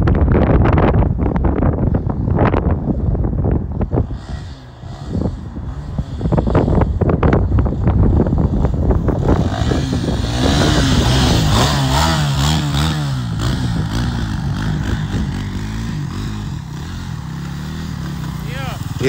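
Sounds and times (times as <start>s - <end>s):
dirt bike engine revving: 3.9s - 19.0s.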